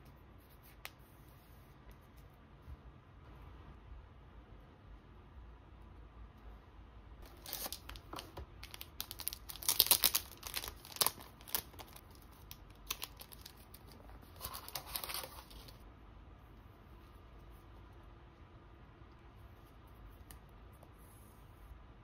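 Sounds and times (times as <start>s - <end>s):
plastic sleeve crinkling: 7.2s - 15.8s.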